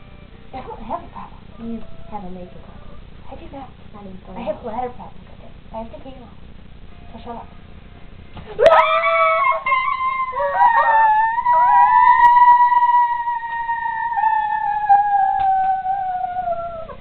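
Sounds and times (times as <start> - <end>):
person wailing high-pitched: 8.6 - 17.0.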